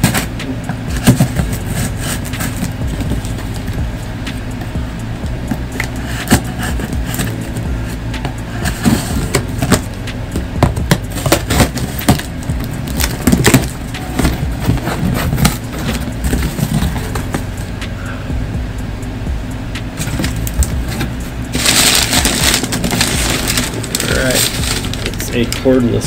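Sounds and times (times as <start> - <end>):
low steady hum: 0.0 - 26.0
cardboard crackling: 20.0 - 25.7.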